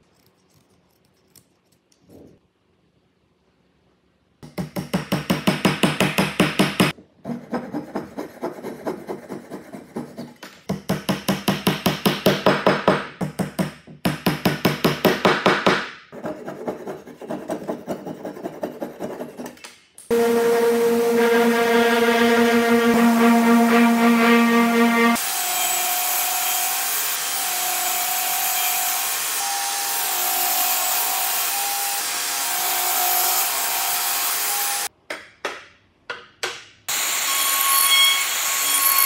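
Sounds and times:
music: 20.1 - 25.2.

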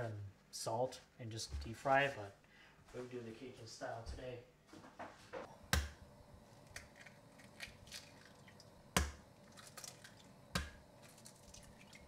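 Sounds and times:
shell crackling: 5.8 - 11.8.

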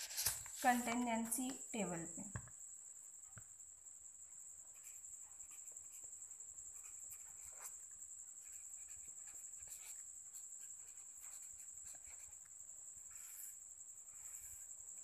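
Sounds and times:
marker pen scratching on paper: 4.7 - 15.0.

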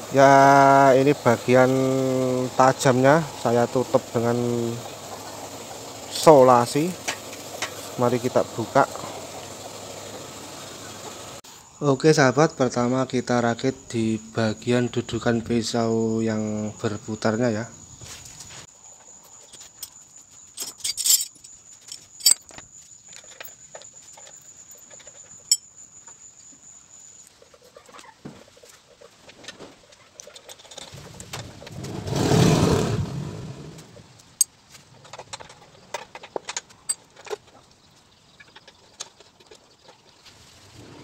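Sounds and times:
metal tools clicking and clinking: 19.7 - 25.7, 34.4 - 37.5.

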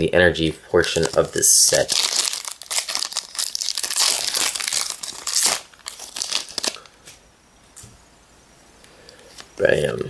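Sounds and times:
foil wrapper crinkling: 0.8 - 6.9.

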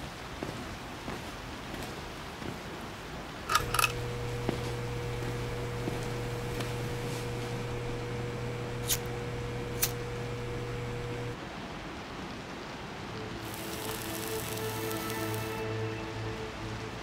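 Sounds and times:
neon tube humming: 3.5 - 11.4, 13.4 - 15.6
sharp clicks: 3.5 - 11.4
hiss: 3.7 - 11.4, 13.2 - 15.6.

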